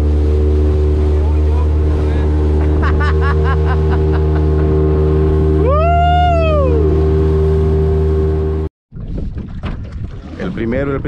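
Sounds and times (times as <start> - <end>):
outboard motor droning: 0.0 - 8.7.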